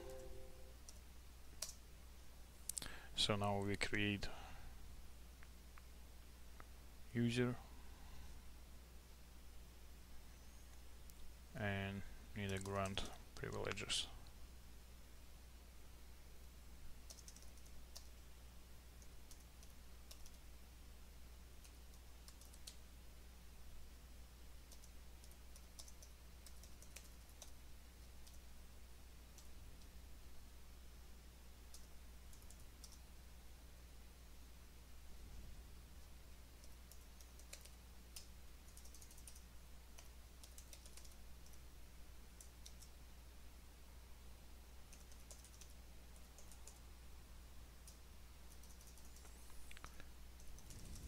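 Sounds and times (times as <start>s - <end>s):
low steady hum: 0.0s - 51.0s
keyboard typing clicks: 12.4s - 13.8s, 17.0s - 18.1s, 19.0s - 20.4s, 21.6s - 22.8s, 24.7s - 28.4s, 31.7s - 33.0s, 36.6s - 41.6s, 42.4s - 43.0s, 44.9s - 46.8s, 47.8s - 51.0s.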